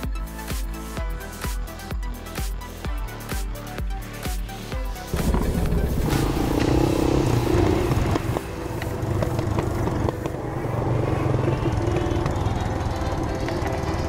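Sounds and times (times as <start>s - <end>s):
motorcycle engine running: 5.1s - 14.0s.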